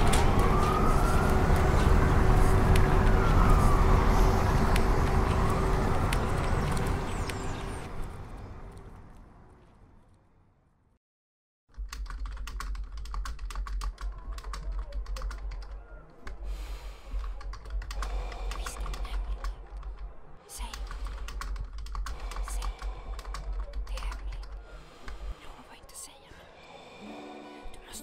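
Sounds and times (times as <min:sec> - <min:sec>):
typing on computer keyboard: 0:11.8 - 0:15.9, 0:17.2 - 0:24.6.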